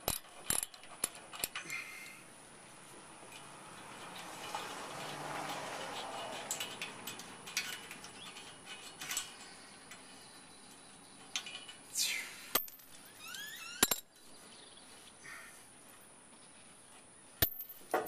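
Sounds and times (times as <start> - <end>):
metallic clicks and clinks: 0.0 - 2.2, 3.2 - 11.9, 12.5 - 14.3.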